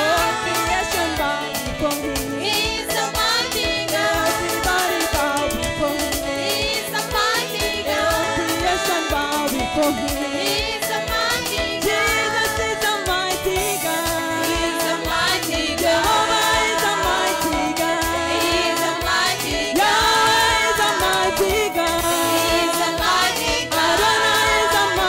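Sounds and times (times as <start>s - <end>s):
group singing gospel music: 0.0s - 25.0s.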